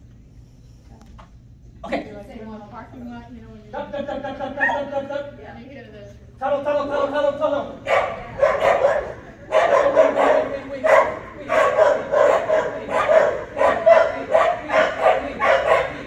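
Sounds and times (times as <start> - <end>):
dog barking: 7.8 - 16.0.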